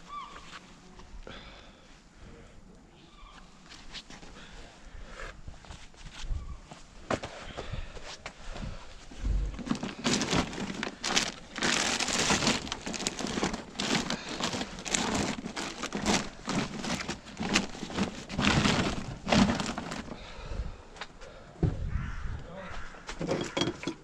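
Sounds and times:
plastic bags rustling: 9.2s - 20.5s.

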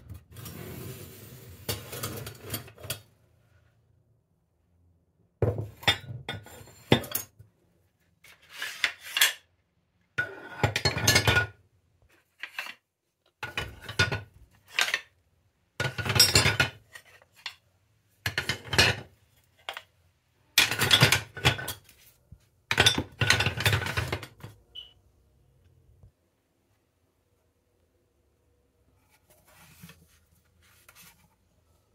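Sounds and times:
utensils clattering into ceramic crocks: 0.4s - 3.1s, 10.2s - 11.6s, 13.4s - 15.1s, 15.8s - 17.6s, 18.3s - 19.9s, 20.6s - 21.9s, 22.7s - 24.9s.

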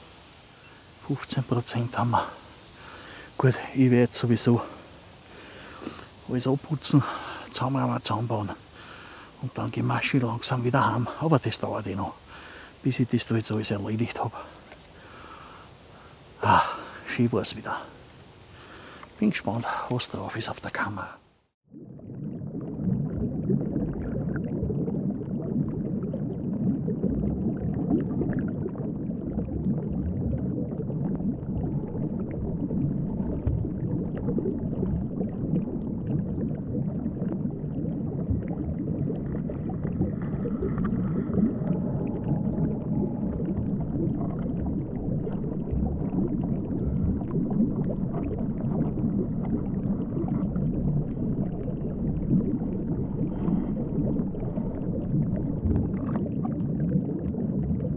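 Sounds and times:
muffled underwater rumble: 21.7s - 57.9s.

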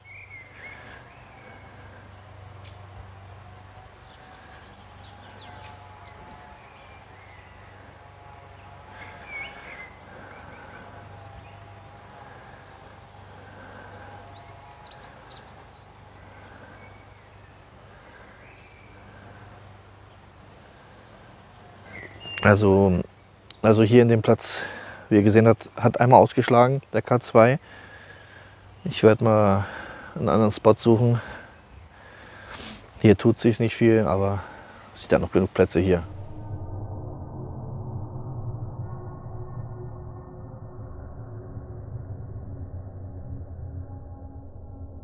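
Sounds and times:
high thin trilled birdsong: 0.0s - 20.5s, 21.3s - 24.2s
steady low hum: 0.0s - 24.0s, 33.8s - 45.0s
small birds chirping: 0.0s - 36.5s.

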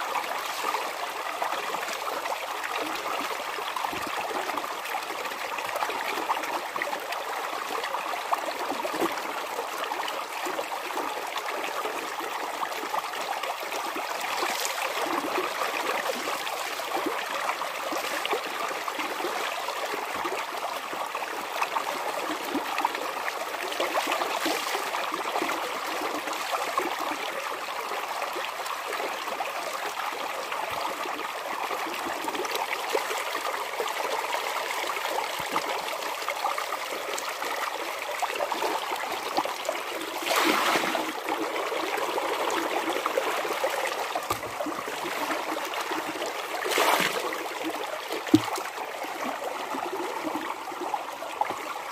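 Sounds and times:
running water: 38.5s - 51.9s
water splashing and dripping: 44.1s - 47.2s, 48.2s - 48.8s.

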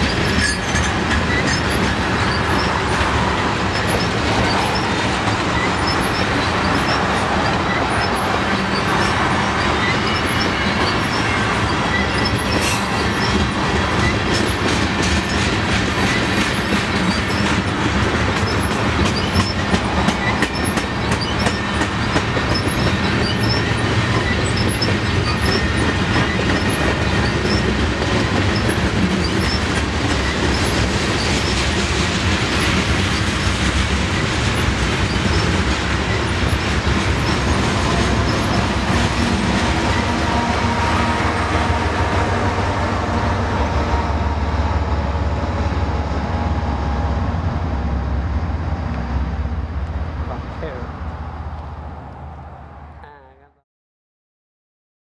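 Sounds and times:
wheels clicking over rail joints: 0.0s - 41.8s
freight train wheels rumbling: 0.0s - 53.3s.

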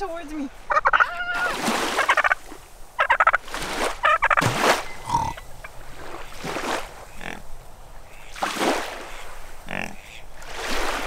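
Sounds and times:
turkey gobbling: 0.7s - 2.4s, 3.0s - 3.4s, 4.0s - 5.5s.

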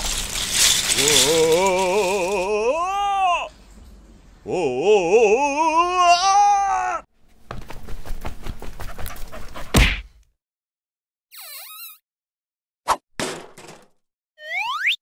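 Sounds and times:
rattling clatter with loud hit: 0.0s - 2.4s, 13.2s - 14.0s
wavering howling wail: 0.6s - 3.5s.

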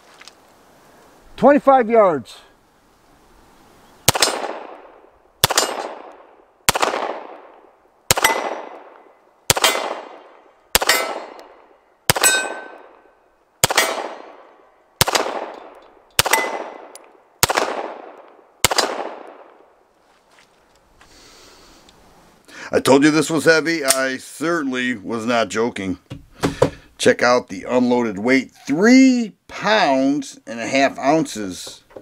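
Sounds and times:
pistol shots with echo: 4.1s - 19.6s.

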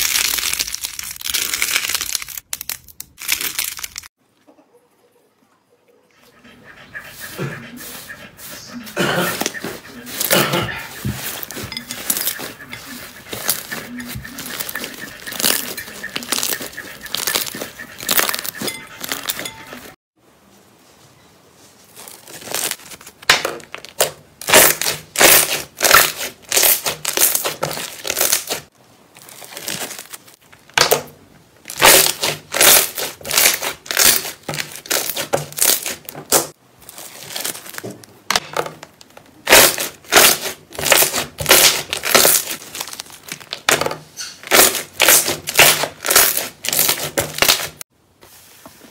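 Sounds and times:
slime crackling and popping: 0.0s - 4.1s, 44.4s - 47.8s.

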